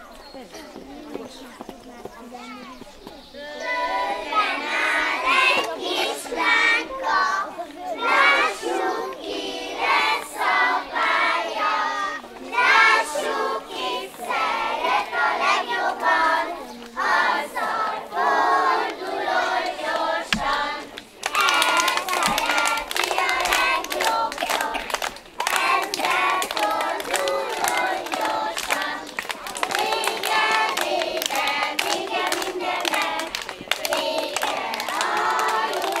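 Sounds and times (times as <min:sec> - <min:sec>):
children singing in unison: 0:03.4 - 0:36.0
quick hand clapping: 0:20.3 - 0:36.0.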